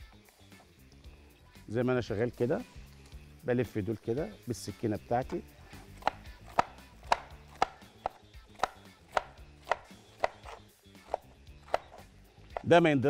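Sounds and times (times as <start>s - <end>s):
knife slicing on wooden board: 5.6s - 12.7s.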